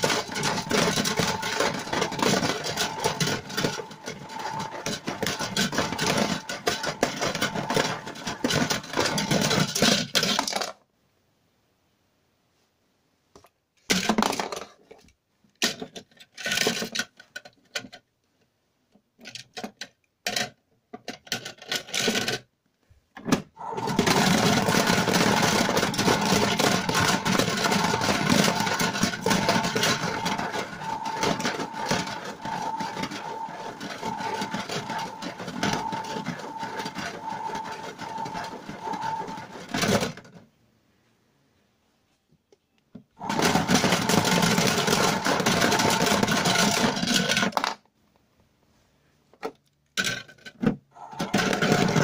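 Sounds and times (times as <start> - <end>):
toy washing machine motor whirring: 0.0 - 10.6, 23.6 - 40.3, 43.2 - 47.7, 51.0 - 52.0
plastic knocks and clatter: 0.0 - 10.8, 13.4 - 18.0, 23.2 - 40.4, 42.9 - 47.9, 49.4 - 52.0
toy car rattling in drum: 0.0 - 10.8, 15.6 - 18.0, 19.2 - 22.5, 23.6 - 40.3, 43.2 - 47.9, 50.0 - 52.0.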